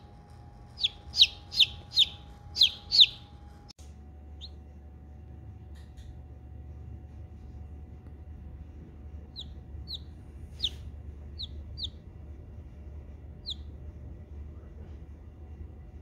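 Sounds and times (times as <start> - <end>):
chick peeping: 0.7 - 3.4, 9.3 - 12.0, 13.4 - 13.7.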